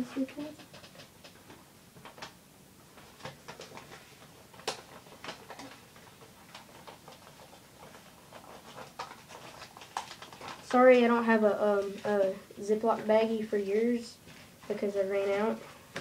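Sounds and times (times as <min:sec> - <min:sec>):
small objects clicking and tapping: 0:00.5 - 0:02.4.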